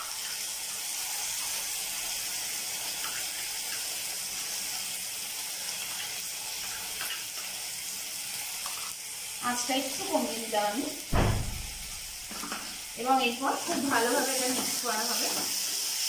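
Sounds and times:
onion sizzling in hot oil: 0:00.0 - 0:16.0.

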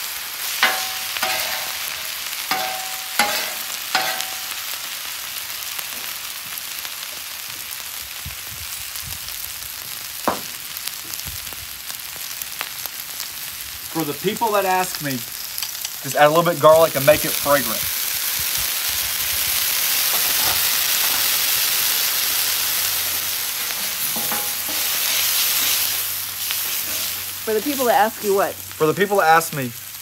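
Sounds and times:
food sizzling on griddle: 0:00.0 - 0:30.0
metal spatula clanking on steel: 0:00.6 - 0:04.6, 0:24.1 - 0:25.8.

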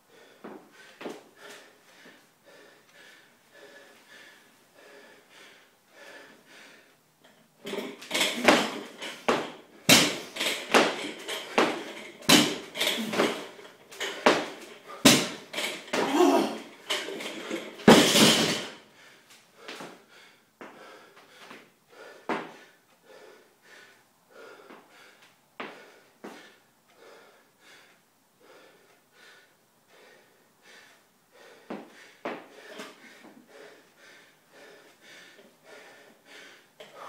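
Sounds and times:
heavy breathing: 0:00.0 - 0:37.0
barbell dropped on floor: 0:07.7 - 0:18.8.

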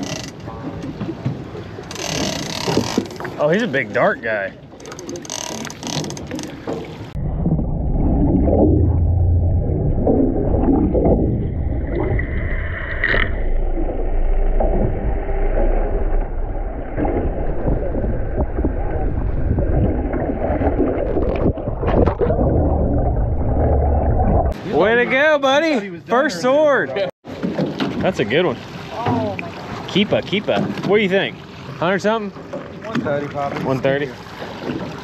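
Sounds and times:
boat engines rumbling: 0:00.0 - 0:11.9, 0:24.5 - 0:35.0
water around hull: 0:00.0 - 0:35.0.

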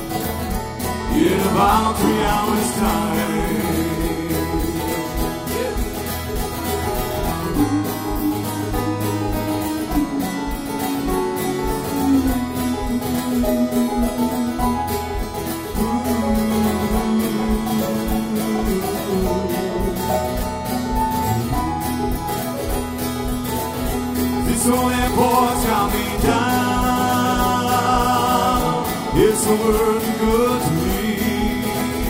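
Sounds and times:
acoustic guitar: 0:00.0 - 0:32.0
banjo: 0:00.0 - 0:32.0
mandolin: 0:00.0 - 0:32.0
voices: 0:00.0 - 0:32.0.

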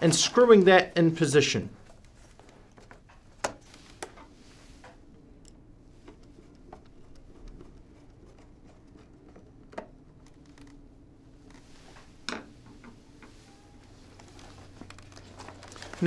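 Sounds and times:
fabric rustle: 0:13.2 - 0:16.0.

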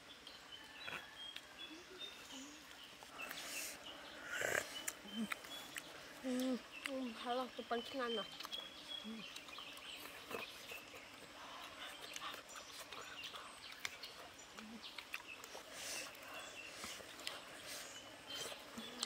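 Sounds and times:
chewing clicks and lip smacks: 0:04.6 - 0:07.2, 0:08.2 - 0:17.5, 0:18.3 - 0:19.0.

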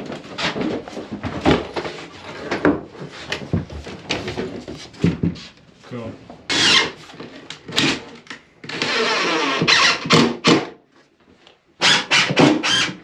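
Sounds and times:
cordless drill driving screw: 0:06.5 - 0:06.9, 0:08.7 - 0:10.2, 0:11.8 - 0:13.0.

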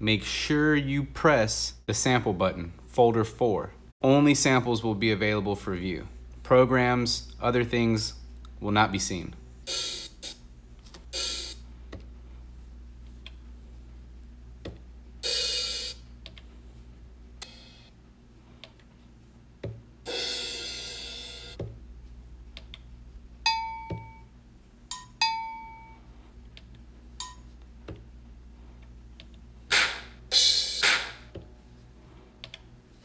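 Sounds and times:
cymbal hiss: 0:09.7 - 0:10.4, 0:11.1 - 0:11.6, 0:15.2 - 0:16.0, 0:17.4 - 0:17.9, 0:20.1 - 0:21.6, 0:29.7 - 0:31.3.

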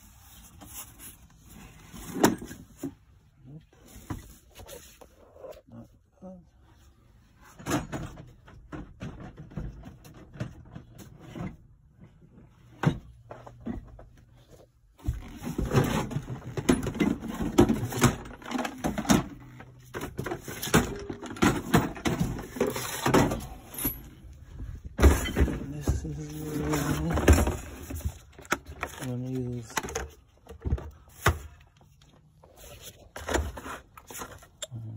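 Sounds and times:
plastic cases knocking and clattering: 0:07.6 - 0:11.9, 0:15.0 - 0:31.8.

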